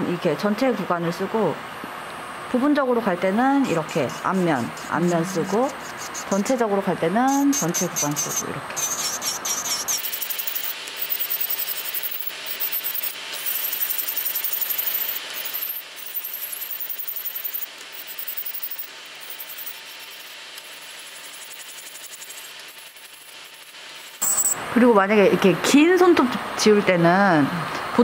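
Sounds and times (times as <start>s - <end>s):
faint motor hum: 0.0s - 28.0s
electric nail drill grinding: 3.7s - 6.6s, 7.3s - 24.6s.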